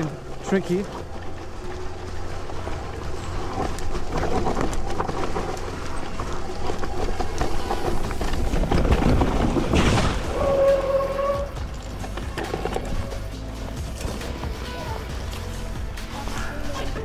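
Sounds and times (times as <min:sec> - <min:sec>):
bike rattles and knocks: 0:00.0 - 0:17.0
tyres rolling through leaf litter: 0:00.0 - 0:17.0.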